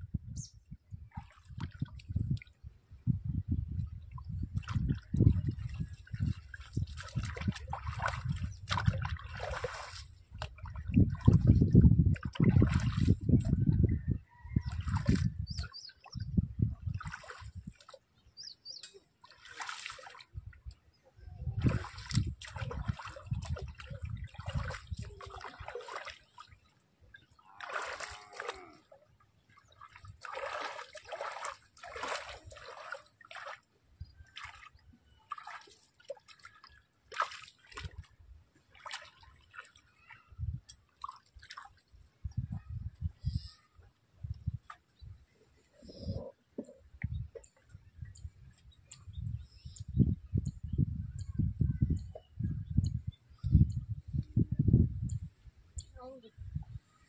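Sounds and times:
water splashing and sloshing: 0:00.9 - 0:43.0.

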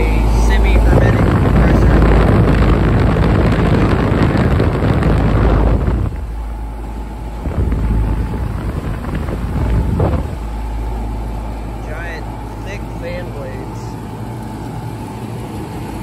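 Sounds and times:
heat pump fan rushing air: 0:00.0 - 0:16.0
low hum with faint tone: 0:00.0 - 0:16.0.

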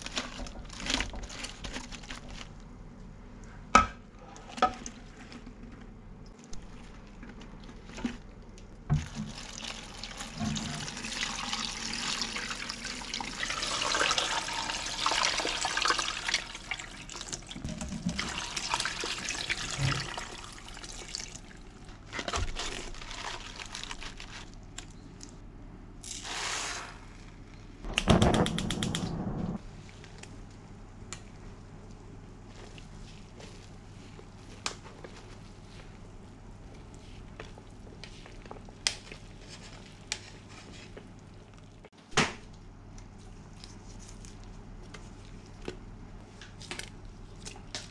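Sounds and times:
water running into a pot: 0:09.0 - 0:21.4
rattling burst: 0:27.9 - 0:29.6.

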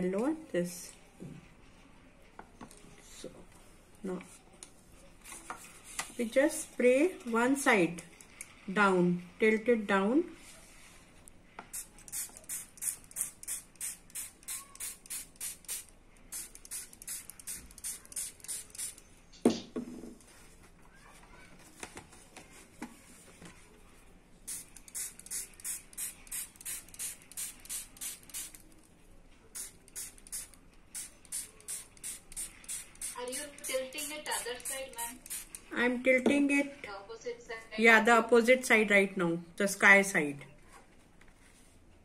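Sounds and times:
spray bottle hissing: 0:11.7 - 0:19.0, 0:24.5 - 0:28.7, 0:29.6 - 0:35.6.

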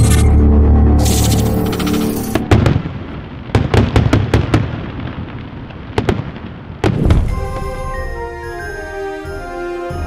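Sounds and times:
fireworks bangs: 0:02.4 - 0:08.2.

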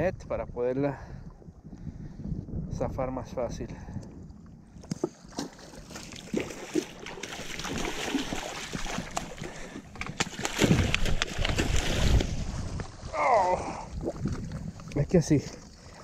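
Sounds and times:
water splashing and sloshing: 0:04.2 - 0:16.0.

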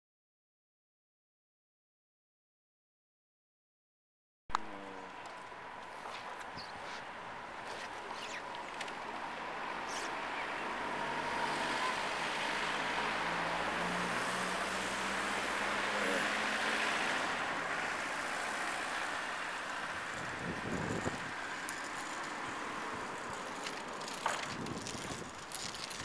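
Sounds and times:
vehicle engine hum: 0:04.5 - 0:26.0
tyre noise: 0:20.1 - 0:26.0.

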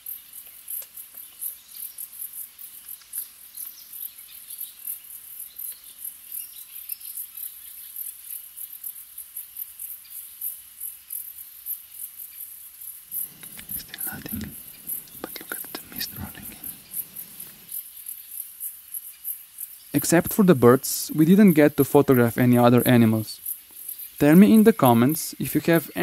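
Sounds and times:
crickets chirping: 0:00.0 - 0:26.0
faint bird chirps: 0:13.2 - 0:18.4.

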